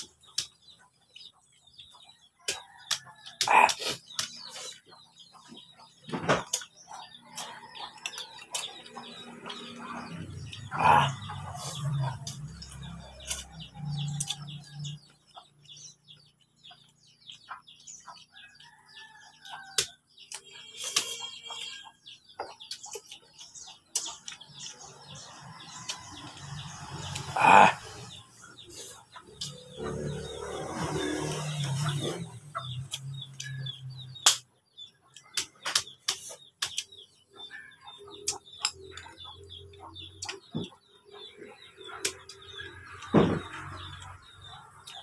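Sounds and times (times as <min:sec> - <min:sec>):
chickens clucking: 0:00.0 - 0:45.0
man eating with hands: 0:02.5 - 0:04.9, 0:06.4 - 0:17.9, 0:25.8 - 0:32.2.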